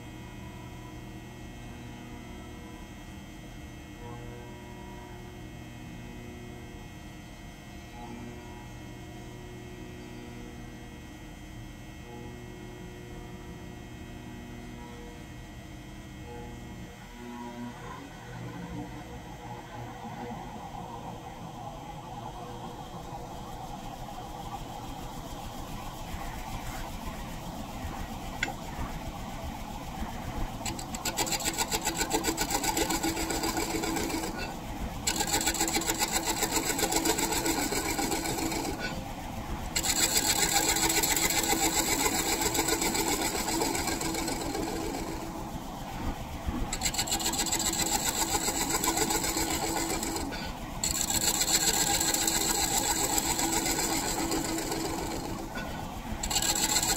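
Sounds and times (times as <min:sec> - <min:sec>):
wood lathe spinning: 0:17.0 - 0:56.9
scraper cutting wood: 0:30.6 - 0:39.0, 0:39.8 - 0:45.3, 0:46.7 - 0:56.9.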